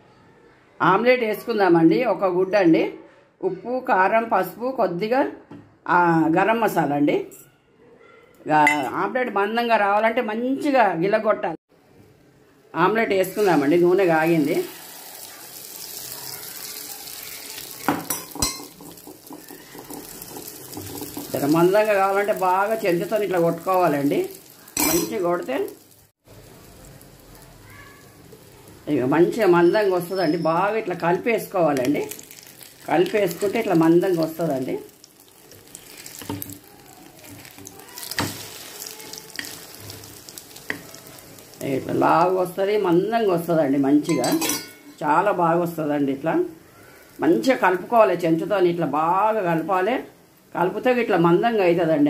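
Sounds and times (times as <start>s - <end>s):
egg sizzling in hot oil: 13.1s - 45.2s
spoon knocking against pan: 17.9s - 21.3s
spoon scraping and stirring: 35.6s - 41.1s.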